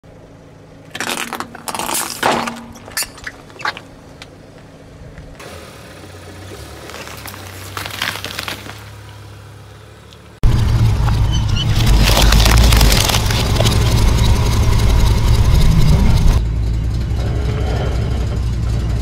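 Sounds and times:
car engine humming: 0:00.0 - 0:19.0
tyre crushing crunchy items: 0:00.9 - 0:04.2, 0:06.6 - 0:09.0, 0:11.8 - 0:13.8
rubber toys crackling and popping: 0:11.7 - 0:14.0.

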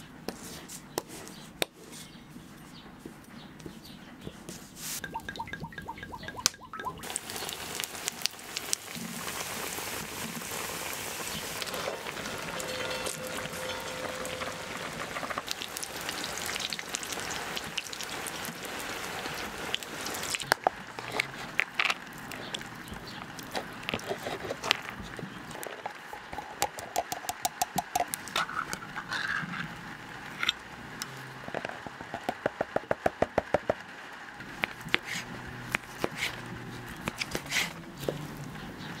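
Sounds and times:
hot oil sizzling in a pan: 0:07.0 - 0:20.9.

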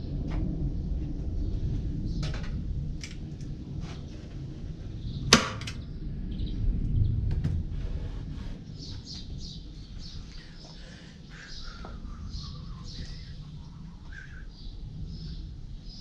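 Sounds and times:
steady low rumble: 0:00.0 - 0:16.0
staple gun snap: 0:05.3 - 0:05.8.

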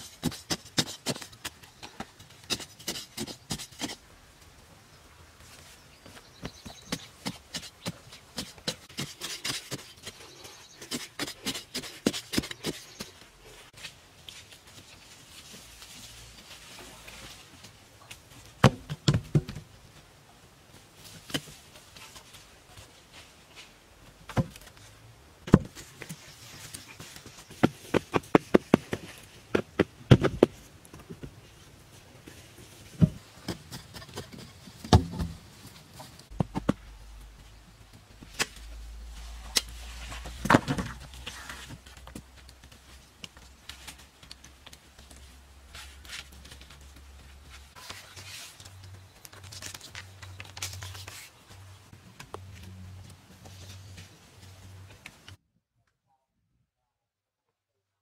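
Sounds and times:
loose earth scraped and thrown: 0:38.1 - 0:42.4.

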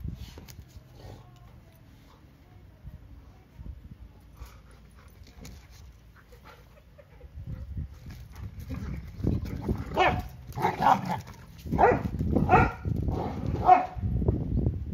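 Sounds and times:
dogs rumbling and scuffling: 0:00.0 - 0:03.2, 0:03.8 - 0:14.3
dogs play barking: 0:08.0 - 0:14.0.

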